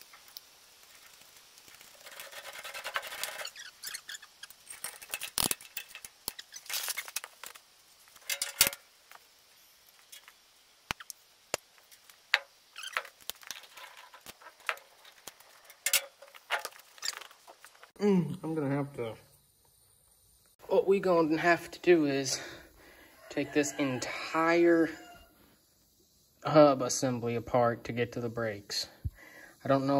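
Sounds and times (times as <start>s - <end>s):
rasping rattle: 0.8s - 7.6s
metal tools clinking: 2.0s - 7.3s, 8.2s - 8.8s, 15.6s - 17.2s.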